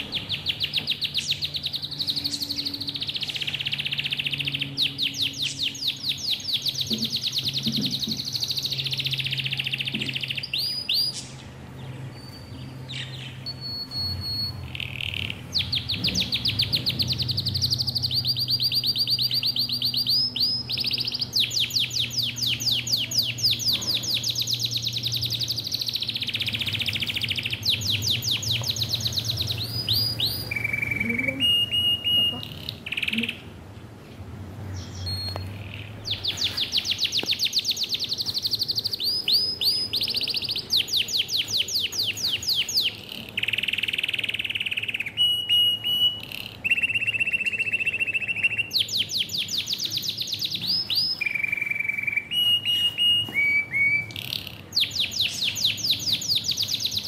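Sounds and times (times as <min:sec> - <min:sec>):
budgerigars chirping: 0:12.4 - 0:33.4, 0:34.8 - 0:57.0.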